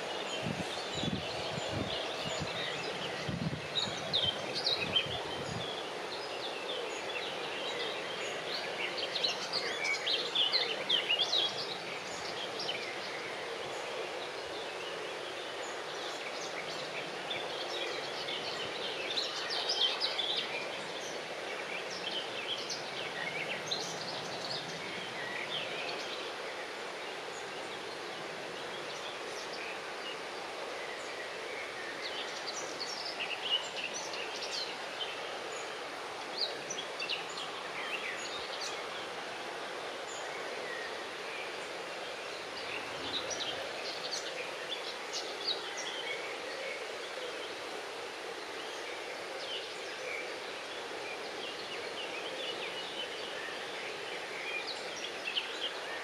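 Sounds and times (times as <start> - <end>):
outdoor background hiss: 0.0 - 56.0.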